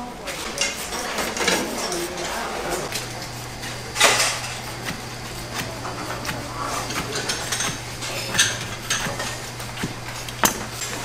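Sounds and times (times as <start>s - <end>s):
dishes and utensils clinking: 0.0s - 11.0s
steady low hum: 0.0s - 11.0s.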